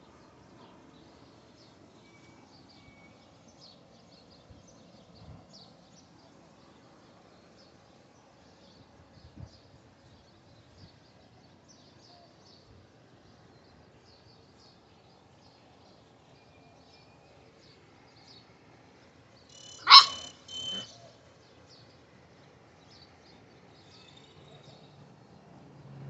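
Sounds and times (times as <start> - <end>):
faint bird chirps: 19.5 - 21.2
puppy barking: 19.6 - 20.9.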